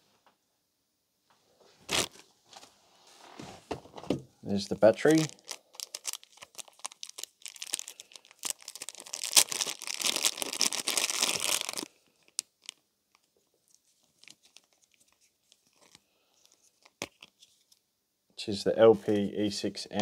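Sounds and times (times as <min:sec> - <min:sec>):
plastic bag crinkling: 0:01.8 - 0:02.2, 0:04.8 - 0:17.4.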